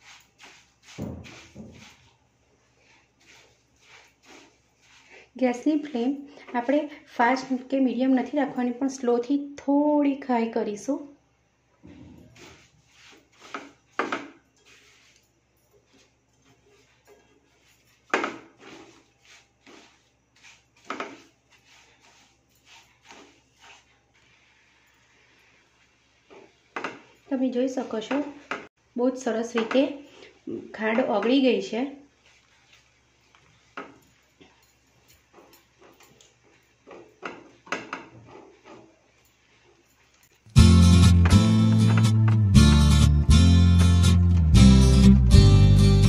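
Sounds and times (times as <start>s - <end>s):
spatula scraping and knocking pan: 0.0s - 2.2s, 12.3s - 15.2s, 15.9s - 27.2s, 29.5s - 31.5s, 35.2s - 43.0s.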